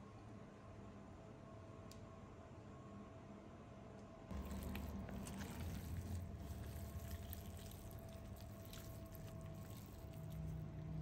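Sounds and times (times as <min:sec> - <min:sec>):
meat being torn by hand: 0:04.3 - 0:11.0
wet squishing: 0:04.3 - 0:11.0.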